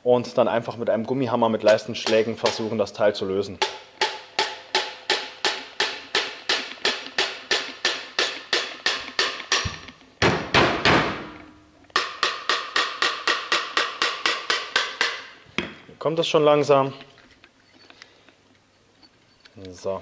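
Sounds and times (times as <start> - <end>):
rubber mallet tapping metal: 1.6 - 2.8, 3.6 - 15.4.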